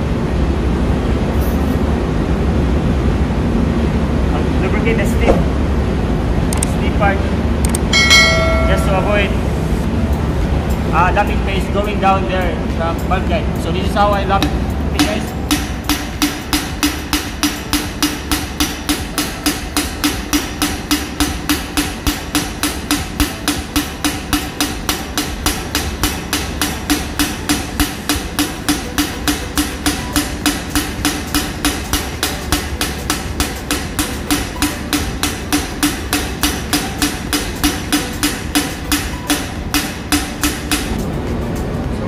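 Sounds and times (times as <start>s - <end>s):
steady low hum: 0.0s - 42.0s
rapid valve tapping: 14.4s - 41.0s.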